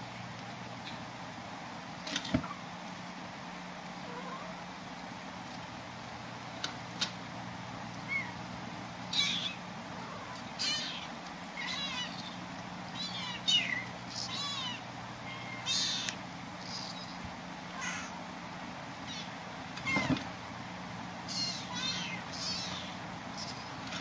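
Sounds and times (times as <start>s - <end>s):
kittens mewing: 9.1s - 18.3s, 19.0s - 20.2s, 21.2s - 24.0s.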